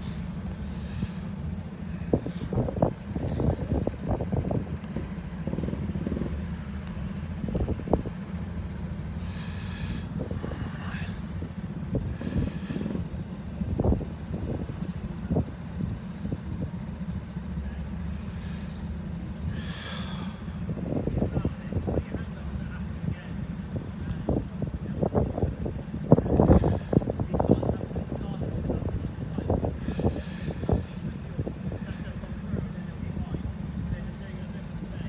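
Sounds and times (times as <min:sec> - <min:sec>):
kart engines idling: 0:00.0 - 0:35.0
wind buffeting microphone: 0:02.0 - 0:06.7, 0:09.2 - 0:16.8, 0:19.4 - 0:33.5.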